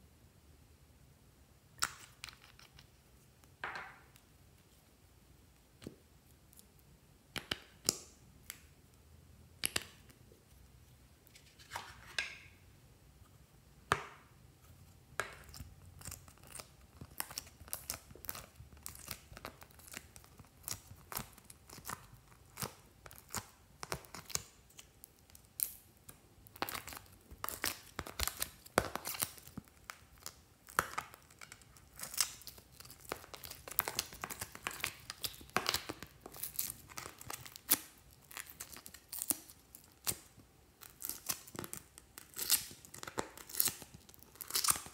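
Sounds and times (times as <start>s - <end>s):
slime tearing and crackling: 15.3s - 44.9s.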